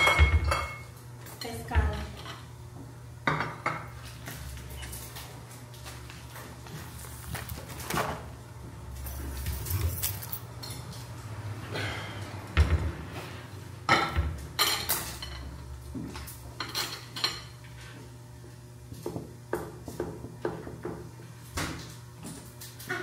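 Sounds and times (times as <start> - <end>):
dishes and cutlery clinking: 0.0 - 1.6, 16.6 - 17.8.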